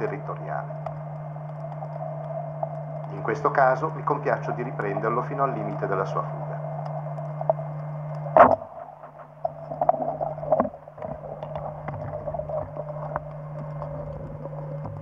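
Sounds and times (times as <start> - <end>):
low underwater hum: 0.0 - 15.0
scattered clicks: 0.7 - 4.2
sharp knock: 8.4 - 9.2.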